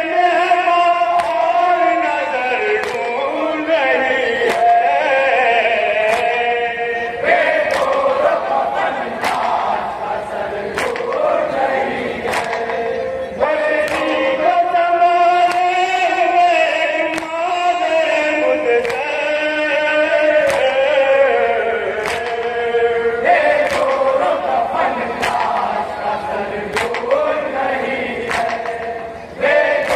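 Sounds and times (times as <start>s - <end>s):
men singing a lament: 0.0s - 29.9s
hands slapping chests: 1.2s - 1.4s, 2.8s - 3.0s, 4.5s - 4.7s, 6.1s - 6.4s, 7.7s - 8.2s, 9.2s - 9.6s, 10.7s - 11.3s, 12.2s - 12.8s, 13.8s - 14.2s, 18.8s - 19.1s, 20.5s - 20.7s, 22.0s - 22.5s, 23.6s - 24.2s, 25.2s - 25.7s, 26.7s - 27.2s, 28.3s - 29.0s.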